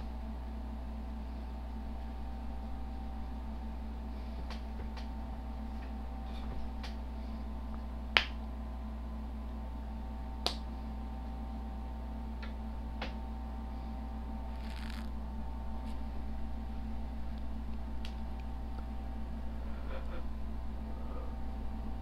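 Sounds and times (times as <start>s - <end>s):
hum of fixed tones: 0.0s - 22.0s.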